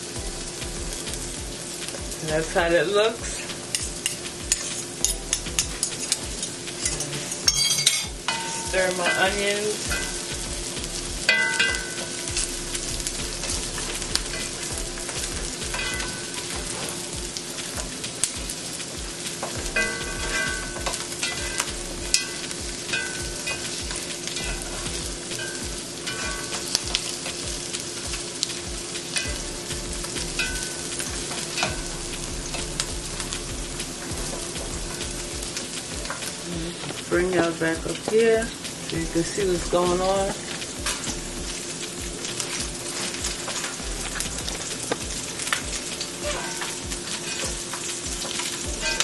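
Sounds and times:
steady low hum: 0.0s - 45.8s
onions sizzling in a frying pan: 0.0s - 49.0s
utensil scraping and clinking on pan: 1.8s - 33.4s, 42.2s - 49.0s.

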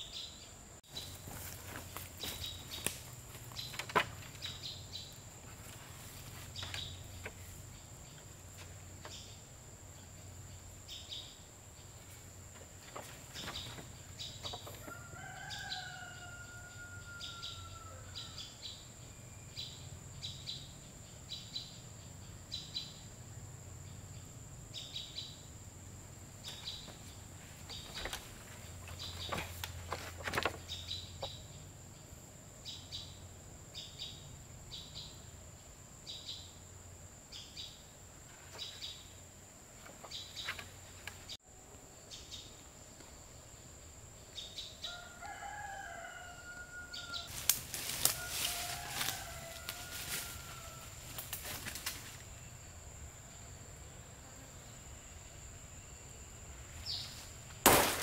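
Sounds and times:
rooster crowing: 14.7s - 18.6s, 44.8s - 51.2s.

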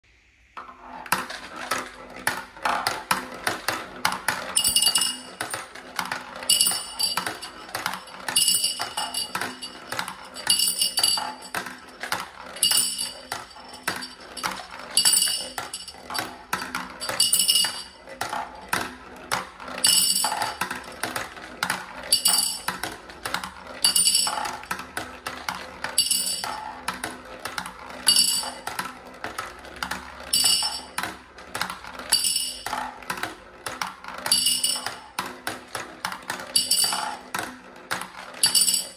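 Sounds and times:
glass marbles rolling and clacking: 0.6s - 38.9s
marble clinking in glass jar: 4.3s - 18.4s, 19.7s - 21.2s, 22.0s - 22.9s, 23.8s - 24.8s, 25.8s - 26.8s, 28.0s - 28.8s, 30.3s - 31.0s, 32.1s - 32.8s, 34.2s - 35.2s, 36.5s - 37.3s, 38.4s - 38.9s.

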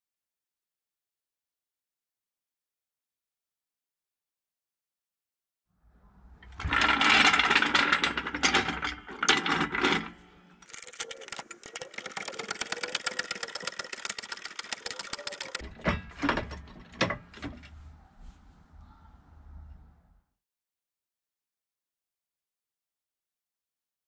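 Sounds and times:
fast mechanical clicking: 10.6s - 15.6s.

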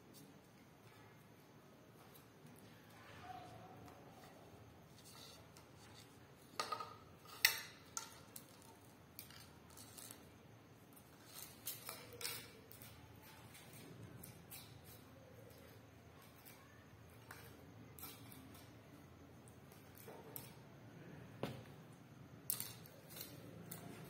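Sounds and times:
rod clicking on concrete floor: 3.9s - 20.7s, 22.4s - 24.0s.

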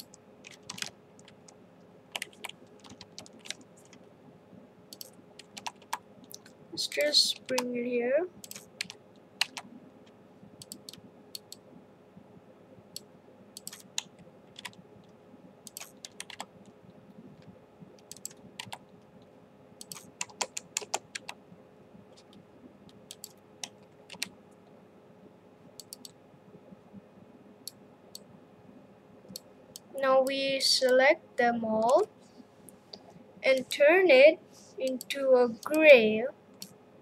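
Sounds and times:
computer keyboard and mouse clicks: 0.0s - 4.0s, 4.9s - 6.6s, 7.4s - 7.7s, 8.4s - 9.7s, 10.6s - 11.6s, 12.9s - 16.5s, 17.4s - 18.9s, 19.8s - 21.4s, 22.2s - 24.3s, 25.8s - 26.2s
faint steady hum: 0.0s - 37.0s.

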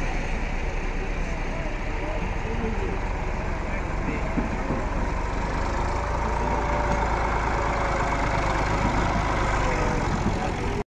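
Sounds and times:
tractor diesel engine running: 0.0s - 10.8s.

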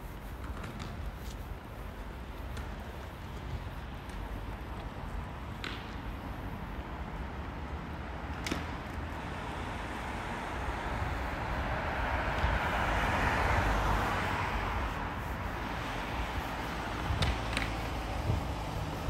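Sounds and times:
car passing by: 7.1s - 19.0s.

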